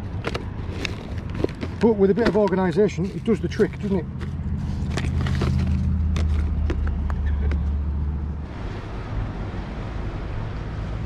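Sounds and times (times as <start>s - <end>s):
fishing tackle clicking and rustling: 0.0s - 7.8s.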